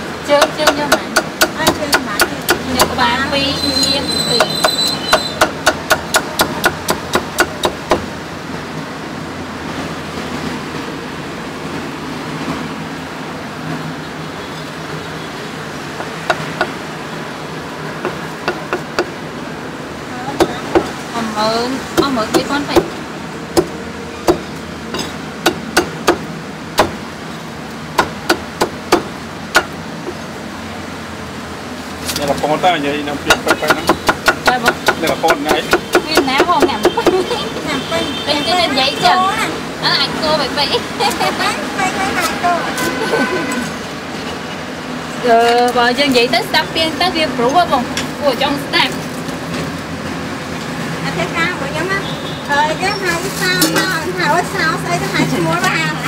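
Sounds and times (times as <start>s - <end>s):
street noise hum: 0.0s - 56.0s
cleaver chopping on wooden block: 0.4s - 3.0s, 4.4s - 8.1s, 23.6s - 24.4s, 25.0s - 27.0s, 28.0s - 29.8s, 33.3s - 37.2s.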